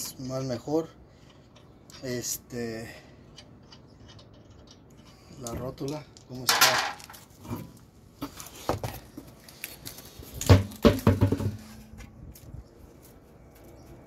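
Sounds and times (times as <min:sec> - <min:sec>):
wheel knocking and thudding: 0:10.4 - 0:12.1.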